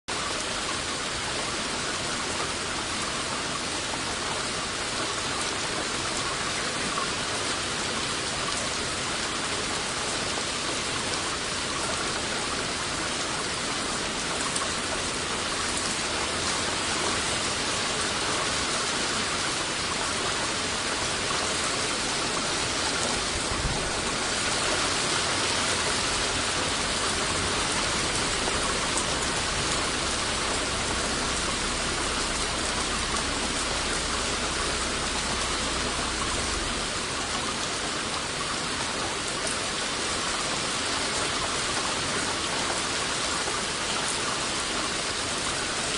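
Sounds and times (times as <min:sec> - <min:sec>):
splashing falling water: 0:00.1 - 0:45.9
low rumble: 0:23.2 - 0:24.4, 0:26.4 - 0:37.6.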